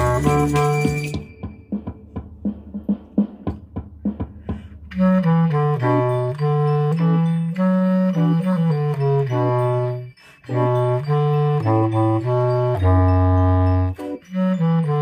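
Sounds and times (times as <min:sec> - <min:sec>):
bass clarinet melody: 0:00.0 - 0:01.4, 0:04.8 - 0:15.0
sharp percussion hits: 0:00.0 - 0:04.8.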